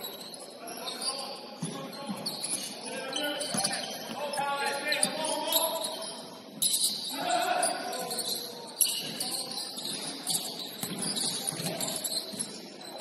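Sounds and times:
shoe squeaks on court: 0:00.0 - 0:13.0
players' voices: 0:00.1 - 0:13.0
basketball bouncing: 0:10.3 - 0:12.5.

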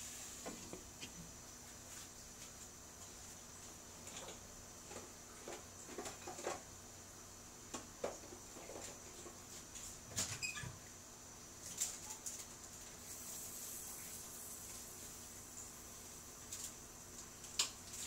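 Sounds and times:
faint steady hiss: 0:00.0 - 0:18.0.

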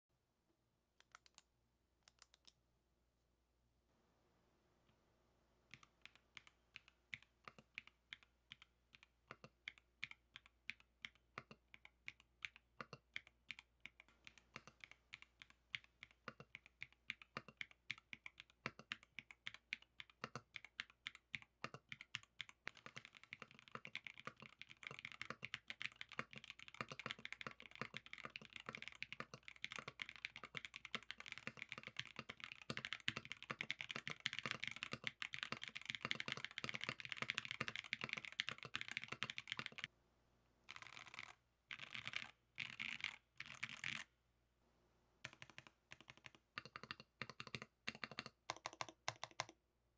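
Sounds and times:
mechanical keyboard typing: 0:05.7 - 0:39.9, 0:40.7 - 0:44.1, 0:45.3 - 0:49.5.

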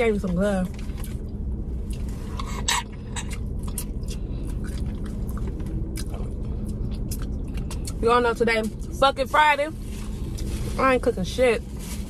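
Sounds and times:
low hum inside car: 0:00.0 - 0:12.0
wet chewing: 0:00.6 - 0:08.0.

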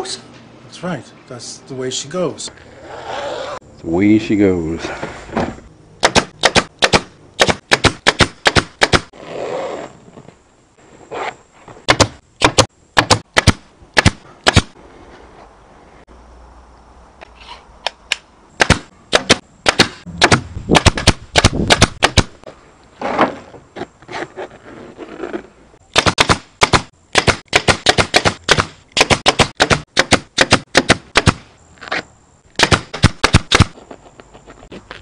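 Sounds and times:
pneumatic stapler firing: 0:06.0 - 0:09.1, 0:32.6 - 0:33.7.

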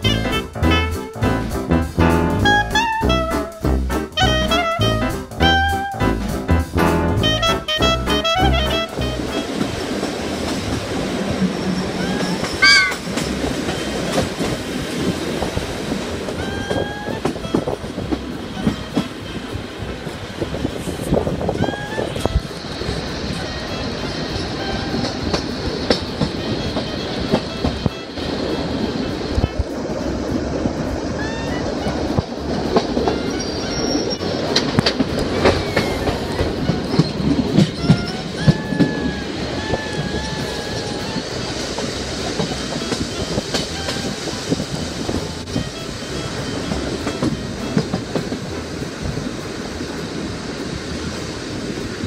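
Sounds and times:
train wheels rumbling on rail: 0:00.0 - 0:52.0
wheel squeal: 0:11.3 - 0:14.4, 0:16.3 - 0:19.4, 0:31.2 - 0:48.4
faint wheel squeal: 0:11.5 - 0:14.0, 0:33.0 - 0:34.7, 0:35.3 - 0:41.8.

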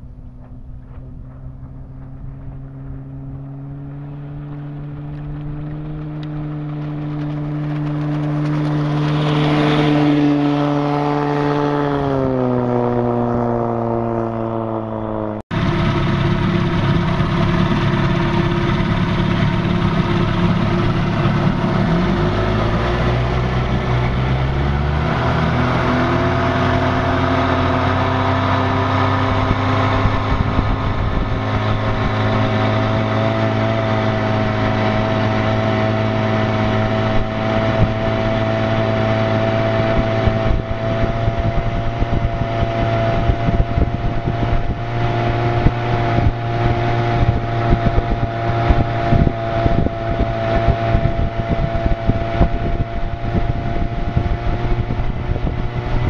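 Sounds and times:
outboard motor running: 0:00.0 - 0:56.0
water noise: 0:00.0 - 0:56.0.

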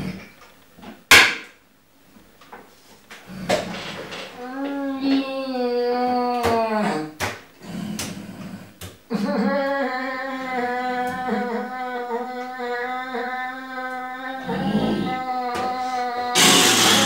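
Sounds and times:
man wailing: 0:09.1 - 0:17.0.

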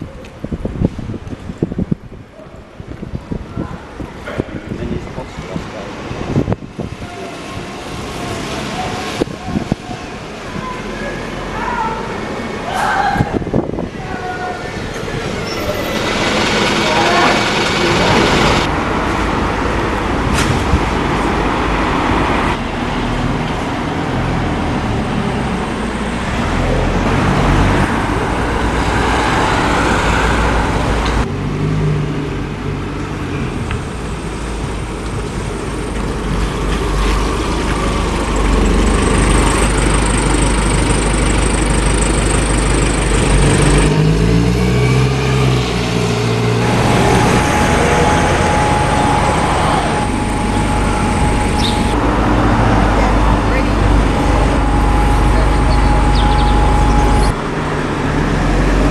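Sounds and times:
diesel buses driving past: 0:00.0 - 0:58.9
road traffic: 0:00.0 - 0:58.9
bus engine rising in pitch: 0:14.5 - 0:58.9.

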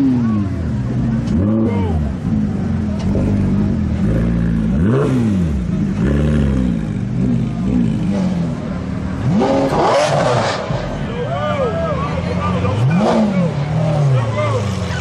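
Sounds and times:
car engines idling and revving: 0:00.0 - 0:15.0.

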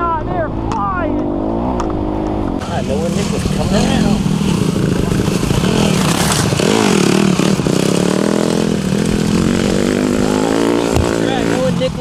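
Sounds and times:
dirt bike engines revving: 0:00.0 - 0:12.0.

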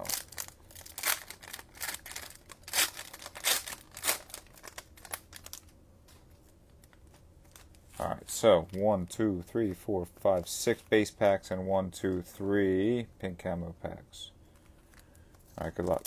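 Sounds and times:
cellophane crinkling and tearing: 0:00.0 - 0:05.7, 0:06.3 - 0:08.1, 0:14.9 - 0:16.0.

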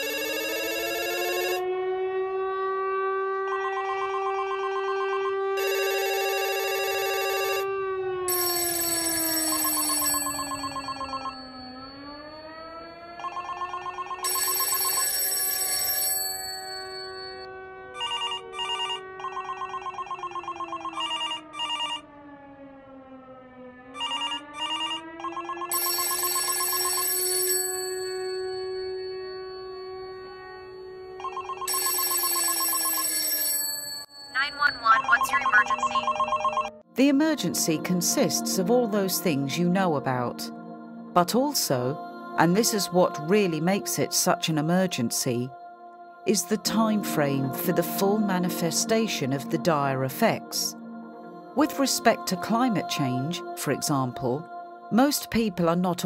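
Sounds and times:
synthesized tone sinking and rising: 0:01.6 - 0:05.6.

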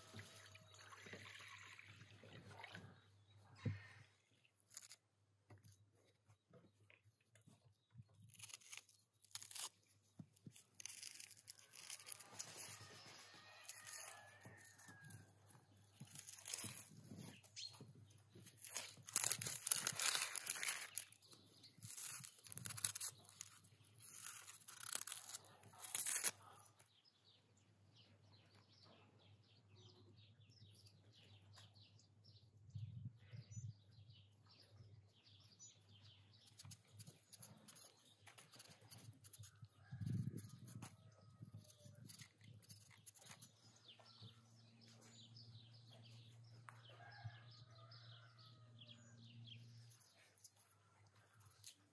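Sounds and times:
dry onion skin tearing: 0:04.6 - 0:05.7, 0:08.1 - 0:26.9, 0:36.4 - 0:44.8
knife peeling potato skins: 0:04.6 - 0:05.9, 0:08.1 - 0:26.9, 0:36.4 - 0:43.7.

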